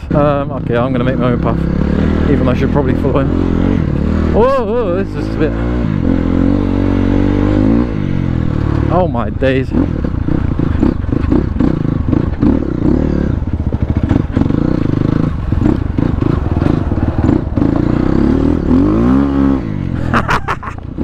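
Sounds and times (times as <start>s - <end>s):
dirt bike engine under load: 8.5s - 19.5s.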